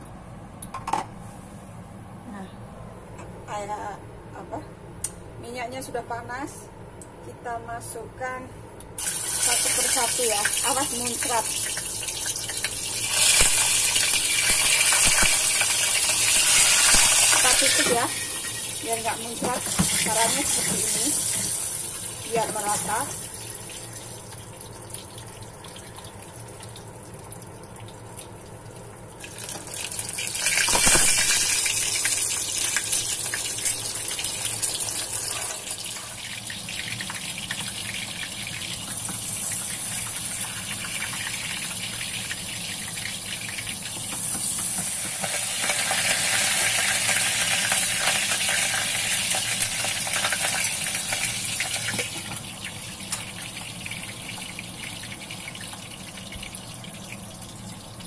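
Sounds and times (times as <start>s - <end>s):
hot oil sizzling and spattering: 9.0s - 24.2s, 29.2s - 55.1s.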